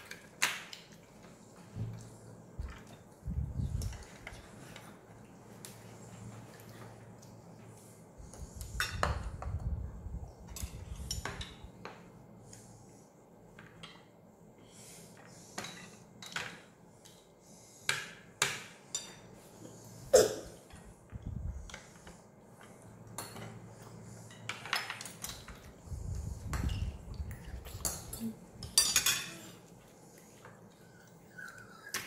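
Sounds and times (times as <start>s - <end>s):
cutlery clinking on plates: 27.8s - 29.4s.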